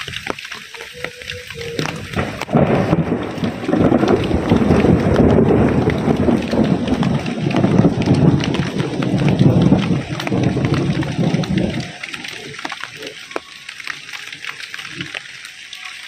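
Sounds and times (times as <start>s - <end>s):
heavy rain: 0.0s - 16.0s
loud thunder rumble: 1.8s - 12.0s.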